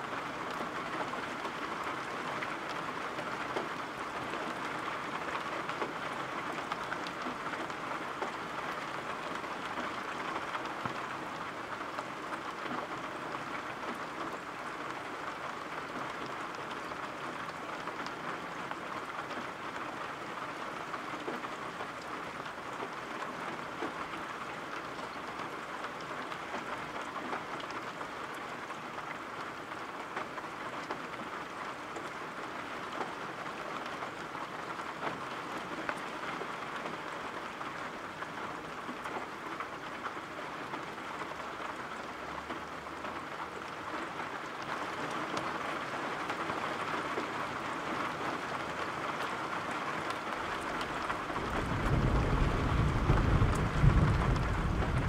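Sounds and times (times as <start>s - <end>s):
steady rain falling: 0.0s - 55.0s
low rumble of thunder: 51.3s - 55.0s.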